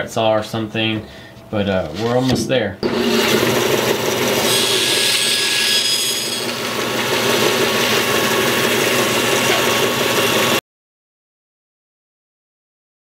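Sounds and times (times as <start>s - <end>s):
bandsaw cutting wood: 2.8s - 10.6s.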